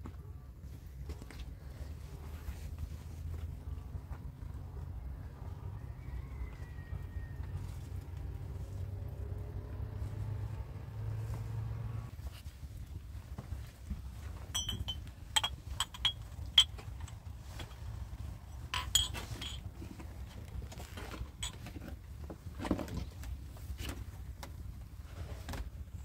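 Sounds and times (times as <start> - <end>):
light metallic clinks: 14.4 - 20.0.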